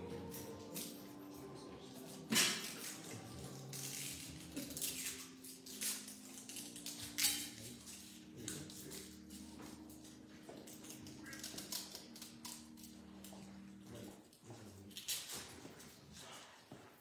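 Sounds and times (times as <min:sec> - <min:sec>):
wrappers rustling and crinkling: 0:02.1 - 0:17.0.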